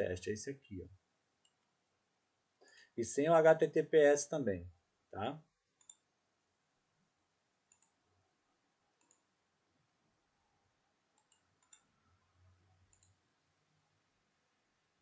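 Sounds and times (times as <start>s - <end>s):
computer mouse clicks: 5.8s - 6.1s, 7.7s - 8.0s, 9.0s - 9.3s, 11.1s - 11.9s, 12.9s - 13.2s.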